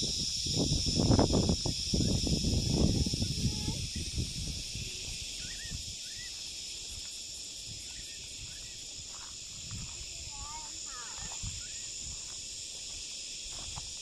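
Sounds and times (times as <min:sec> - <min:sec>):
insects droning: 0:00.0 - 0:14.0
faint bird chirps: 0:05.3 - 0:06.4.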